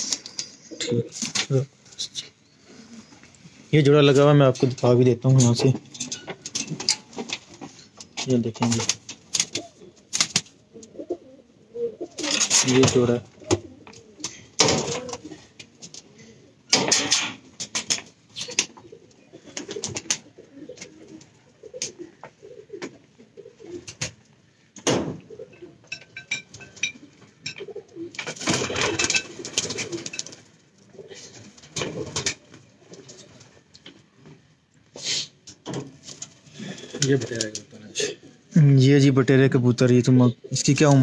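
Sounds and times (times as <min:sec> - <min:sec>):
pigeons cooing: 0:00.0 - 0:03.7, 0:08.9 - 0:34.4, 0:35.0 - 0:38.5
loud clattering noises: 0:04.6 - 0:10.6, 0:12.2 - 0:13.7, 0:14.6 - 0:15.7, 0:16.7 - 0:18.8, 0:24.8 - 0:25.3, 0:25.9 - 0:30.6, 0:31.4 - 0:33.3.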